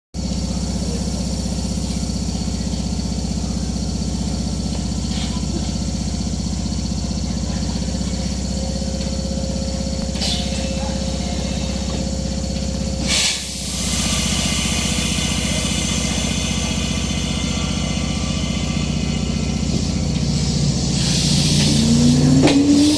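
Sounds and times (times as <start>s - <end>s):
pulsing low hum of train: 0.2s - 22.9s
short hiss: 13.0s - 13.9s.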